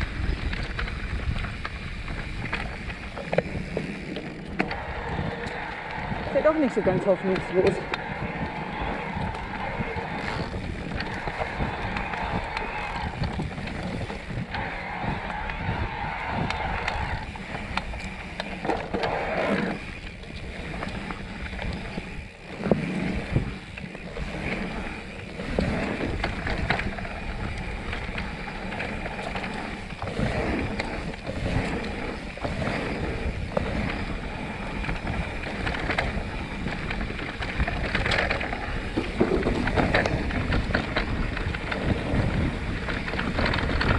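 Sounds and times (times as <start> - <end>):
bike rattling over bumps: 0.0 - 43.9
tyres rumbling on dirt: 0.0 - 43.9
wind buffeting microphone: 0.0 - 43.9.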